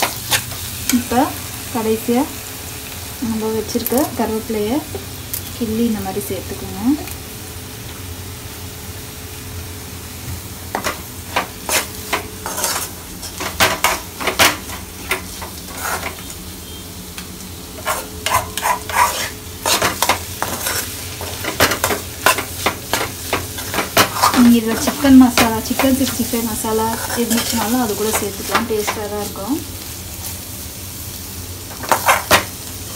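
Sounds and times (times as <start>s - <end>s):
low sizzle of frying: 0.0s - 32.9s
metal spatula scraping a pan: 11.4s - 14.8s, 15.4s - 16.3s, 17.8s - 26.2s, 26.9s - 29.1s, 31.7s - 32.4s.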